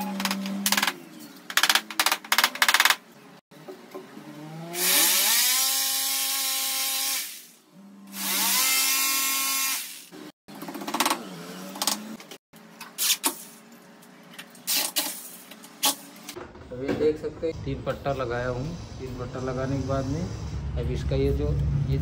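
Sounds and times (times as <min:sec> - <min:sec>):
electric drill spinning: 0:04.7 - 0:10.3.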